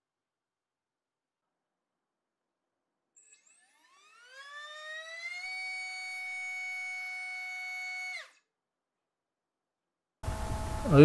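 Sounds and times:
drone motor whine: 3.2 - 8.4, 10.2 - 11.0.

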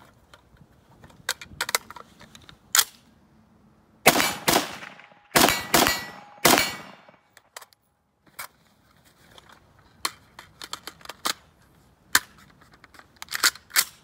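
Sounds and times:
rifle metallic clicks: 1.0 - 3.1, 12.1 - 14.0
rifle shots: 4.0 - 7.4.

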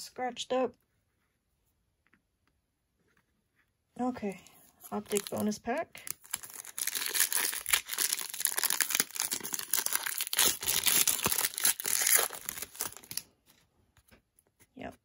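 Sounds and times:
wrapper tearing and crinkling: 5.0 - 13.3.

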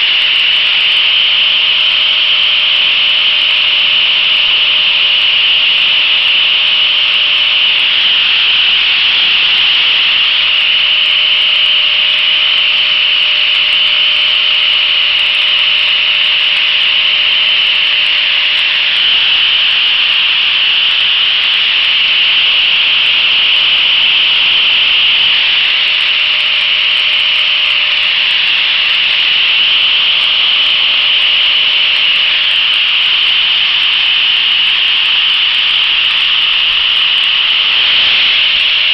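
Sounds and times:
motor whine: 0.0 - 38.9.

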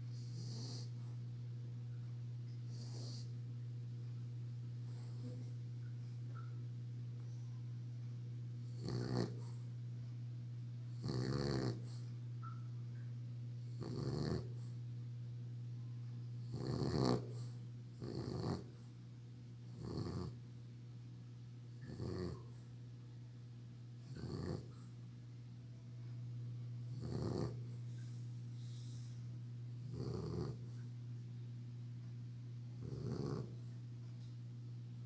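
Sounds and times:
dog snoring: 0.0 - 1.2, 2.7 - 3.4, 4.8 - 5.6, 8.6 - 9.7, 10.9 - 12.2, 13.6 - 14.8, 16.4 - 19.0, 19.7 - 20.5, 21.7 - 22.7, 24.0 - 24.9, 26.8 - 30.9, 32.7 - 33.8.

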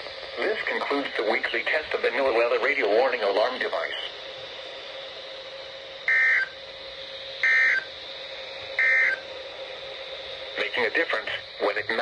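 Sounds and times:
faint radio hiss: 0.0 - 6.0, 9.7 - 12.0
buzzy digital data tones: 6.0 - 6.6, 7.4 - 7.9, 8.8 - 9.2.

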